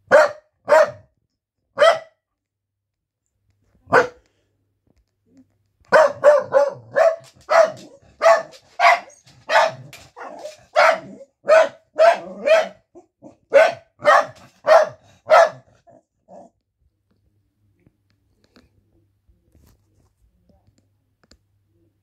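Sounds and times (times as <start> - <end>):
dog barking: 0.0 - 1.1, 1.8 - 2.2, 3.9 - 4.2, 5.9 - 16.5.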